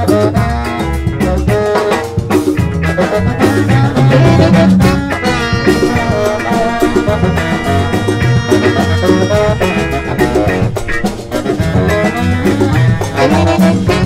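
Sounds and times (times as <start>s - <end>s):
drums: 0.0s - 14.0s
horns: 0.0s - 14.0s
keyboard: 0.0s - 14.0s
latin band playing: 0.0s - 14.0s.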